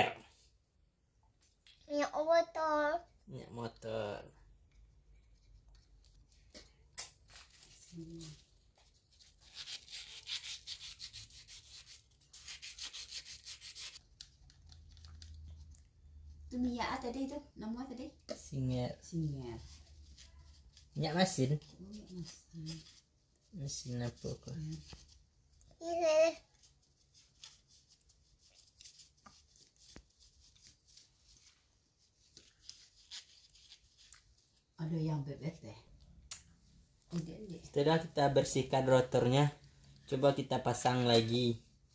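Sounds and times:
tissue rustling: 19.2 - 34.7.

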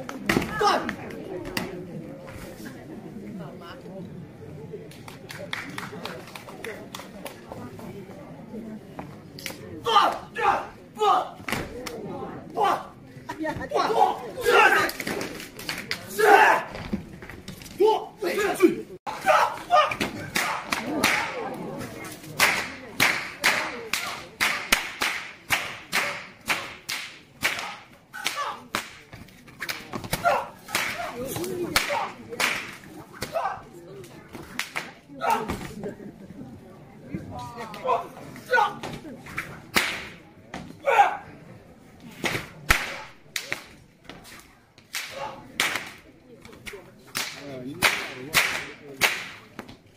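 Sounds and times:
faint crowd voices: 0.0 - 49.9
whip cracking with echo: 19.8 - 21.4, 22.3 - 29.0, 29.6 - 33.5, 42.2 - 43.7, 44.9 - 46.0, 46.7 - 49.5.

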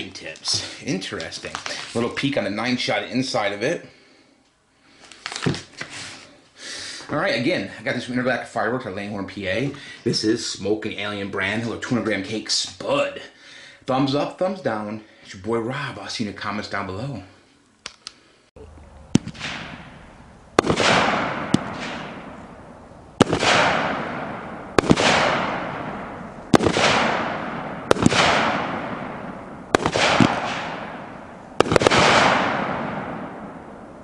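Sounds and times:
firework bangs: 19.0 - 34.0.

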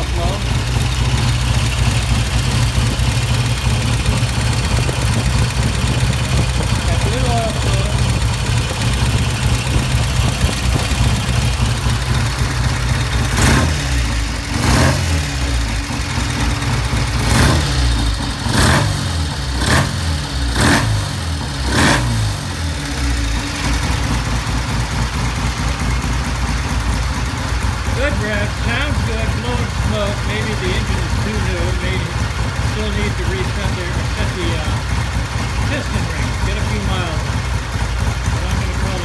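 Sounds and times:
motorcycle engine idling: 0.0 - 39.0
motorcycle engine revving: 0.0 - 39.0.

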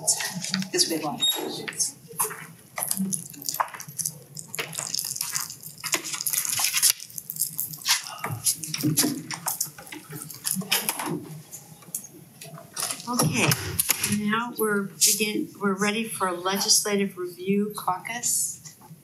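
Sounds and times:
objects and papers being handled: 1.6 - 13.2.

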